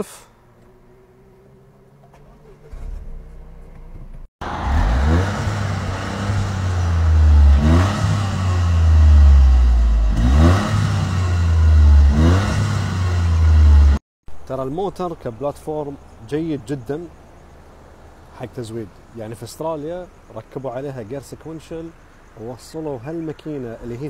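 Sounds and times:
car engine revving: 4.4 - 14.0.

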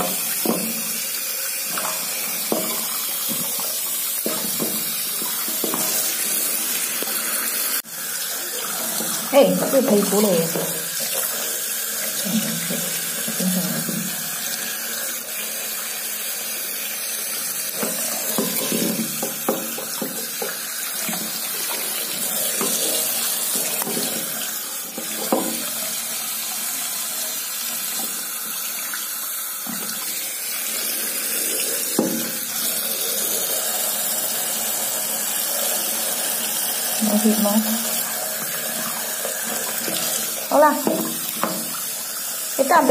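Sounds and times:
tap water running into basin: 0.0 - 42.9
water splashes: 37.0 - 42.0.

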